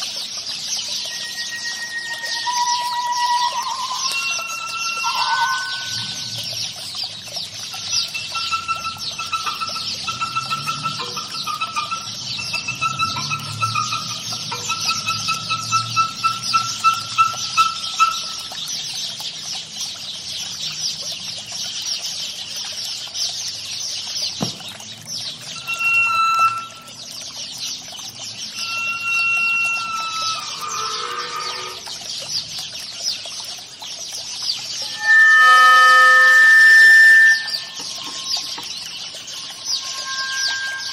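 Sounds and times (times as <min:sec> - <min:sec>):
held pitched tones: 0:01.1 - 0:06.7, 0:07.8 - 0:18.5, 0:25.6 - 0:27.0, 0:28.5 - 0:31.9, 0:34.8 - 0:40.9.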